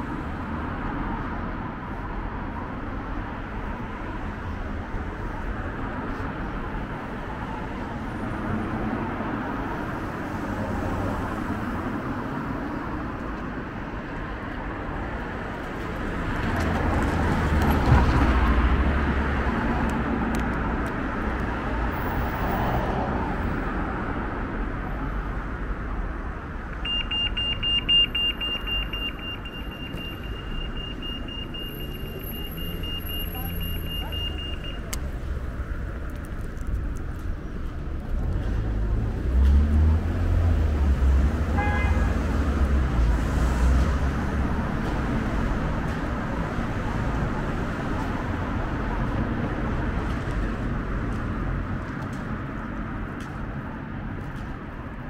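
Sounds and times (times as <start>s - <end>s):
road traffic: 0.0s - 55.0s
high-pitched electronic beeping: 26.8s - 34.9s.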